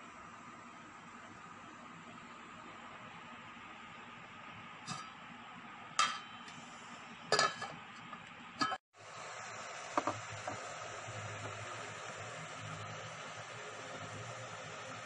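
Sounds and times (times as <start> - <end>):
glass lid clinking on steel pot: 7.3 - 7.7
steady hiss: 9.0 - 15.0.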